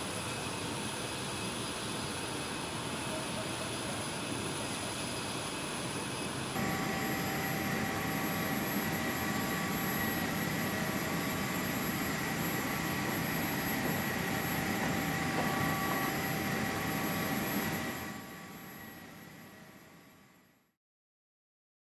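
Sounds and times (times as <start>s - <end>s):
aircraft machinery rushing and whine: 0.0s - 20.4s
steady high tones: 6.6s - 19.2s.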